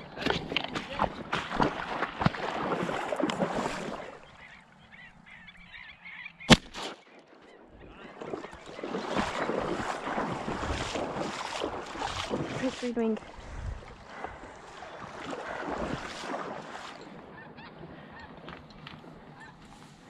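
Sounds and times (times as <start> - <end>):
waterfowl calling and honking: 3.6 - 13.0, 14.2 - 20.0
sharp crack: 6.5 - 7.3.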